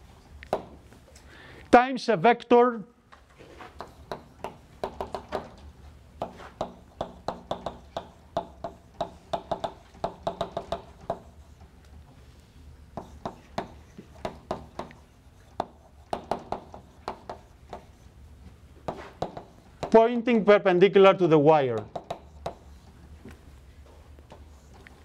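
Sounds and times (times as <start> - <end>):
chalk writing on a blackboard: 3.4 - 20.0, 21.8 - 23.2, 23.8 - 25.0.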